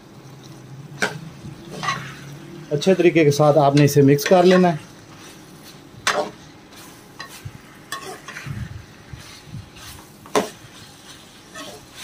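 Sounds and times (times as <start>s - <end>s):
frying sizzle: 0.0s - 12.0s
ladle scraping metal pot: 1.0s - 2.2s.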